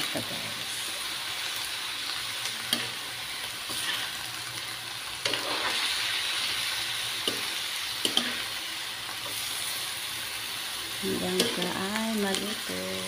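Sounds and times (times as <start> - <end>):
food sizzling in a wok: 0.0 - 13.0
spatula stirring food: 2.4 - 9.7.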